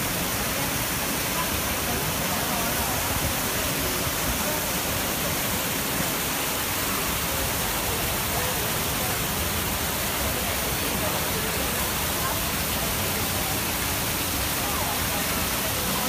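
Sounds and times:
faint voices: 0:00.0 - 0:16.0
fountain water rushing: 0:00.0 - 0:16.0.

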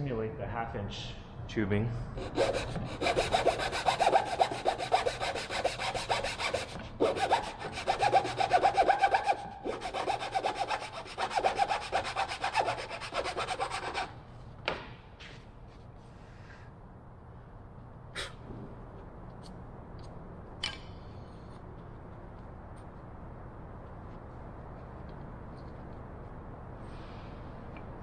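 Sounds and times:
hand saw cutting wood: 0:02.2 - 0:14.1.

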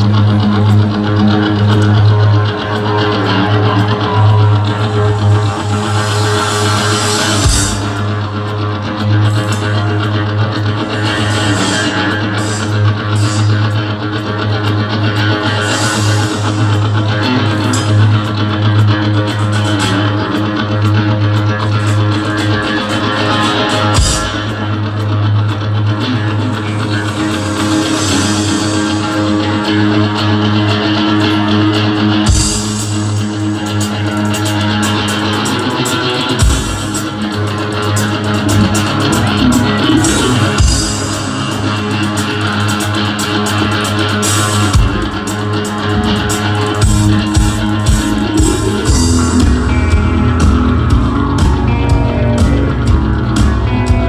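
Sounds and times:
drum kit: 0:00.0 - 0:10.0, 0:23.2 - 0:24.7, 0:32.1 - 0:54.0
bass guitar: 0:00.0 - 0:54.0
electric guitar: 0:00.0 - 0:54.0.

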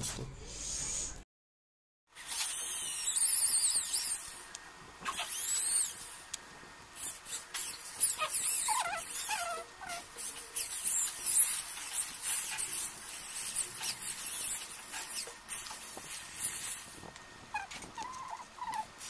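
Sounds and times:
high-pitched squeaks: 0:02.2 - 0:04.4, 0:05.0 - 0:06.2, 0:07.0 - 0:16.9, 0:17.5 - 0:18.9.

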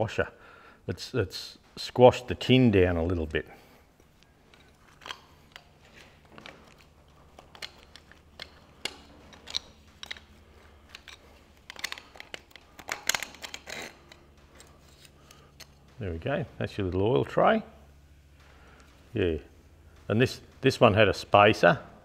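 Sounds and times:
spanners clinking on metal: 0:06.4 - 0:15.7.

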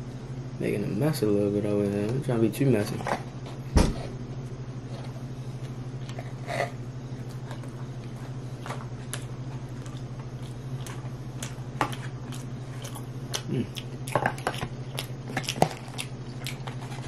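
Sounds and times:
steady low hum: 0:00.0 - 0:17.0
person chewing: 0:05.6 - 0:17.0.

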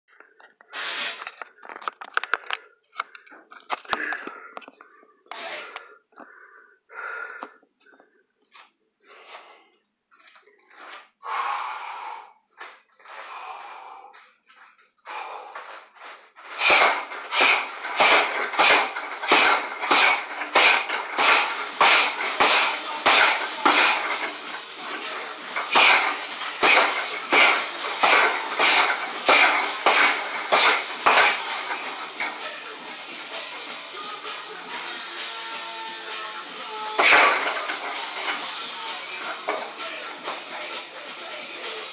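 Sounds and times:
person breathing out hard: 0:05.4 - 0:08.1, 0:11.2 - 0:12.5, 0:13.2 - 0:14.4, 0:15.1 - 0:15.9.

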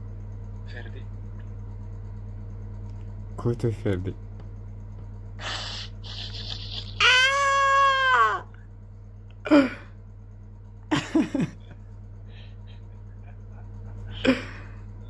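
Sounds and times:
low steady hum: 0:00.0 - 0:15.0
man laughing muffled: 0:05.7 - 0:08.4, 0:10.9 - 0:14.8.

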